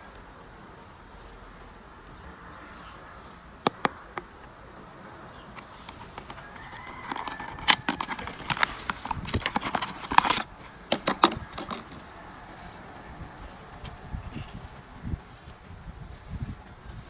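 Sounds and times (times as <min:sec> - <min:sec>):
cardboard box being opened: 0:05.6 - 0:12.1.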